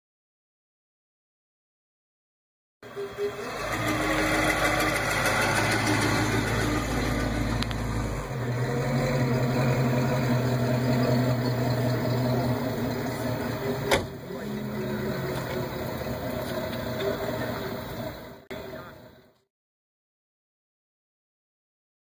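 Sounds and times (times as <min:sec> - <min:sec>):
car engine running at low speed: 0:02.8 - 0:18.9.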